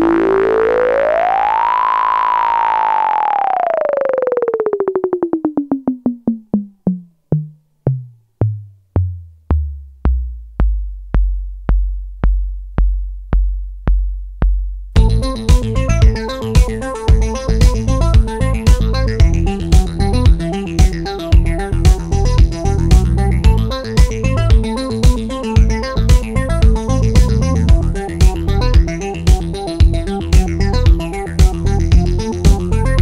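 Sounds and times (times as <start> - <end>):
synth tone gliding in pitch: 0.0 - 5.9
synth pulses and bass throb: 0.0 - 7.1, 15.0 - 33.0
drum machine beat: 4.6 - 33.0.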